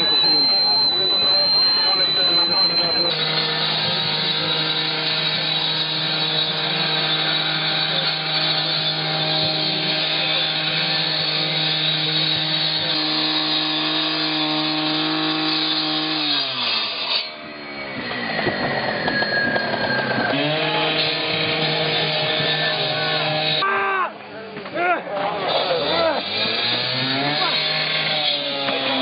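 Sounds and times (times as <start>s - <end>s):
power saw running: 0.0s - 23.6s, 25.2s - 29.0s.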